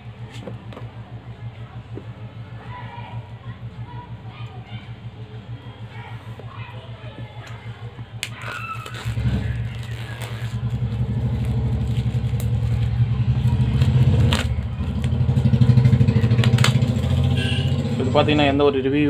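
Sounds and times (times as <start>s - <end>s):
low pulsing engine hum: 0.0s - 19.0s
plastic wrap crackling: 8.2s - 16.9s.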